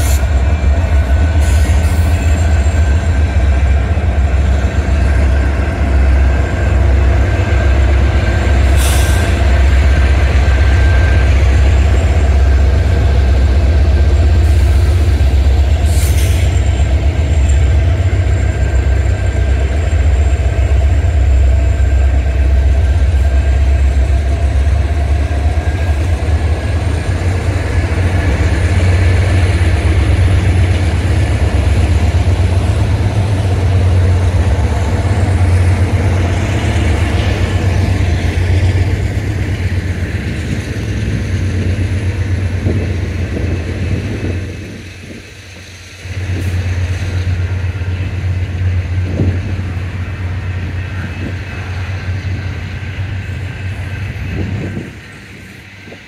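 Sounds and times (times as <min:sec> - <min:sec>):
diesel locomotive engine drone: 0:00.0 - 0:56.0
short air hisses: 0:08.7 - 0:09.4, 0:15.8 - 0:16.6.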